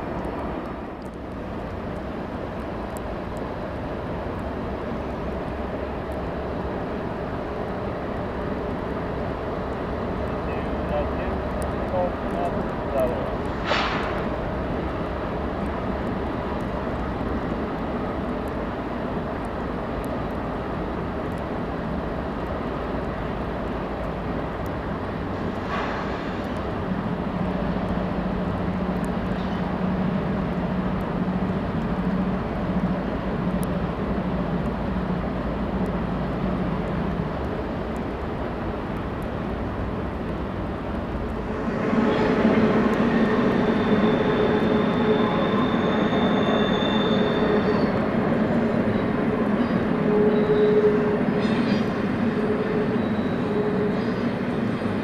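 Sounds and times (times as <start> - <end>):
diesel locomotives droning: 0.0 - 55.0
high steady squeal: 41.4 - 48.1, 48.9 - 54.8.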